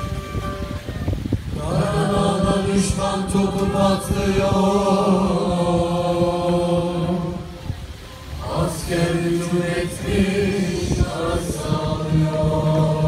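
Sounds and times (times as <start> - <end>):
choir singing held chord: 1.5 - 13.0.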